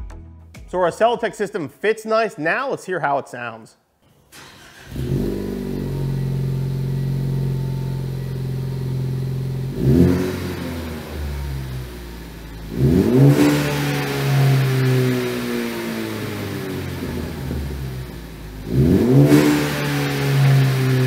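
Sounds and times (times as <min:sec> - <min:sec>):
car engine idling and revving: 0:04.3 - 0:21.0.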